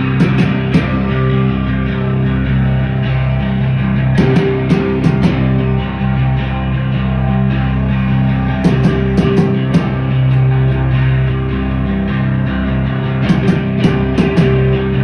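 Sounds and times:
droning electric guitars and bass: 0.0s - 15.0s
drum hits: 0.2s - 1.1s, 4.2s - 5.6s, 8.6s - 10.2s, 13.3s - 14.7s.

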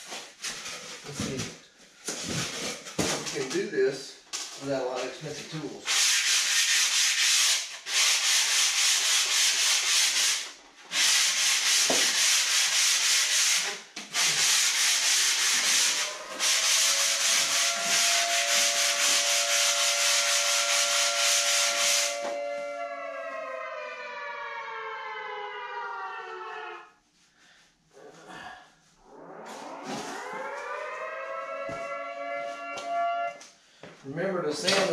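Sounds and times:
sandpaper rubbing on foam board: 5.8s - 22.4s
siren: 14.2s - 27.0s, 28.0s - 33.6s.

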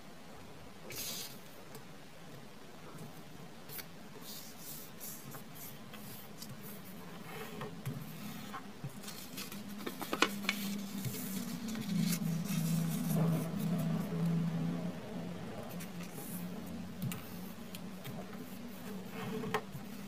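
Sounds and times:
faint low hum: 0.0s - 20.0s
paper rustling and crinkling: 8.0s - 14.2s.

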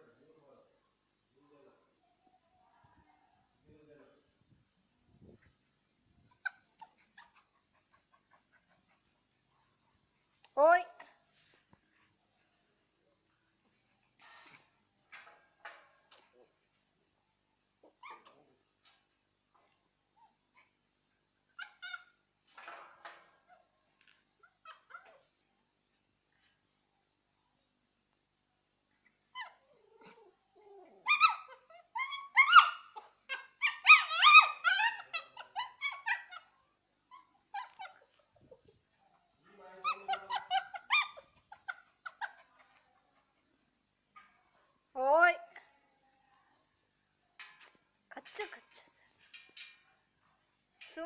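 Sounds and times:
young dogs yipping and whining: 6.3s - 9.1s, 21.5s - 22.2s, 24.3s - 25.4s, 29.0s - 43.1s.

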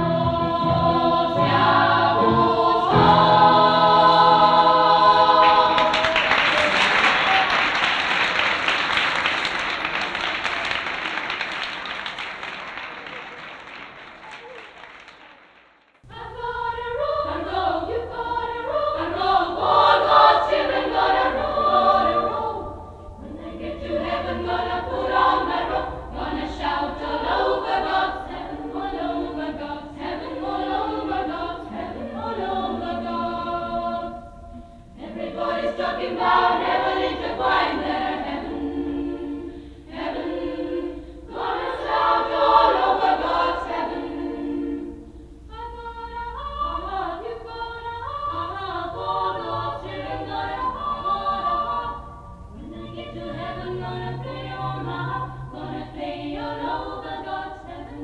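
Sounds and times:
choir singing a cappella: 0.0s - 10.4s, 16.0s - 58.0s.

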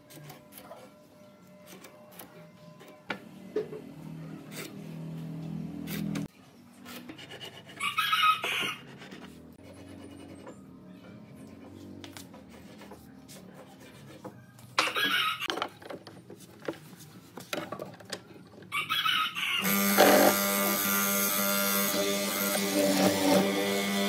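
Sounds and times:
rooster crowing: 7.8s - 8.8s, 18.7s - 19.7s.

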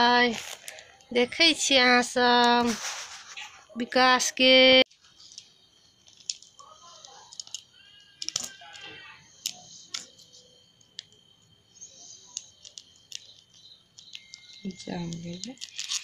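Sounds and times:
plastic sachets crinkling: 0.1s - 1.1s, 4.9s - 11.2s, 11.8s - 16.0s.

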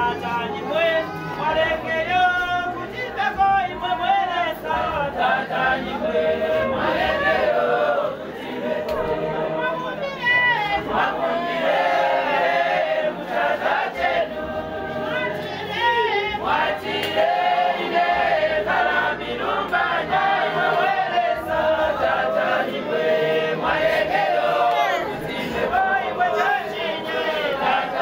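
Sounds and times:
women singing and wailing: 2.9s - 16.9s, 23.6s - 28.0s.

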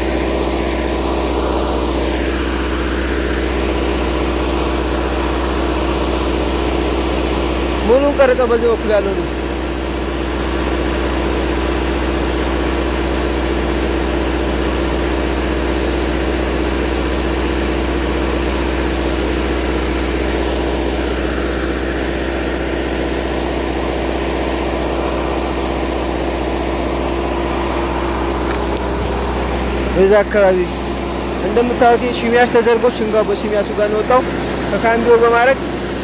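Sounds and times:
tractor engine idling: 0.0s - 36.0s.

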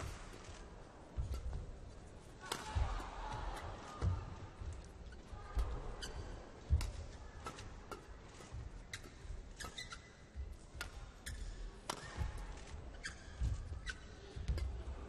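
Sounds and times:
shoes squeaking on court floor: 4.6s - 14.8s.

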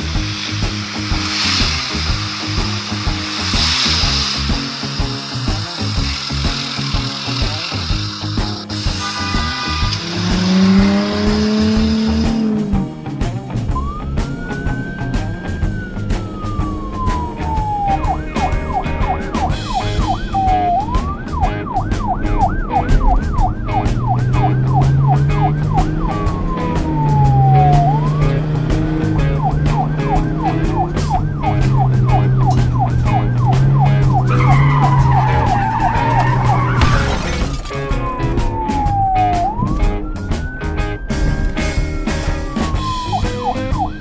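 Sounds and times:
background music with a beat: 0.0s - 44.0s
police siren wailing and yelping: 13.7s - 44.0s
tyre squeal: 34.3s - 37.5s
crash with breaking glass: 36.7s - 37.9s.

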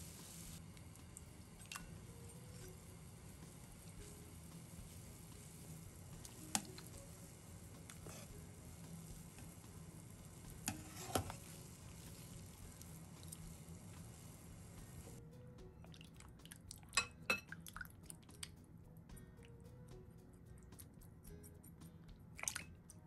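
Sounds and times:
water boiling and bubbling: 0.0s - 15.2s, 15.8s - 18.6s, 22.4s - 22.7s
water splashing and dripping: 22.4s - 22.7s.

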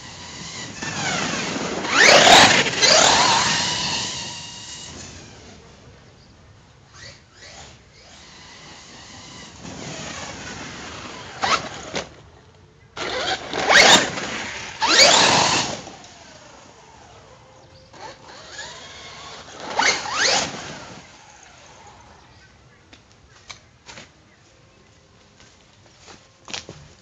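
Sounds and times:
electric motor whining: 0.0s - 6.0s, 6.9s - 12.2s, 13.0s - 22.4s.

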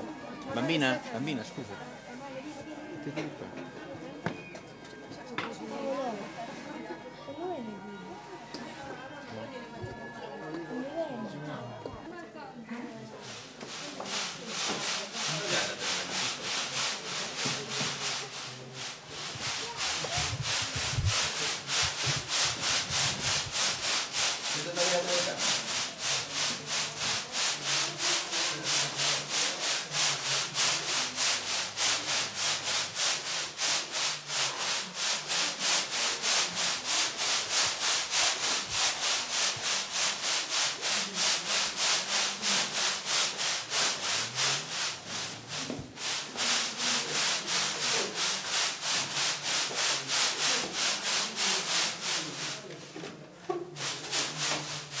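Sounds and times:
rhythmic rubbing by hand: 13.1s - 55.0s.

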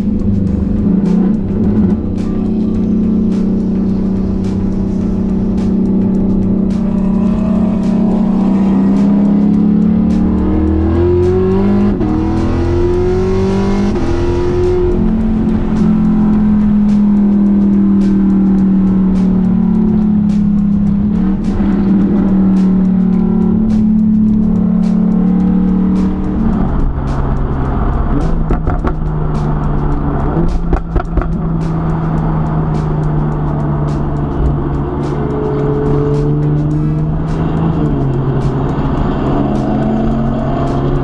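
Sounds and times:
car engine from inside cabin: 0.0s - 30.4s.

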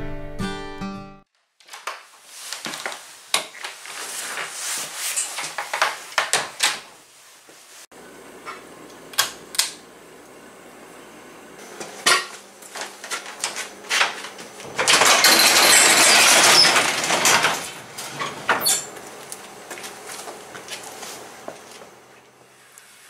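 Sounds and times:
metal garage door rattling: 13.9s - 19.0s.

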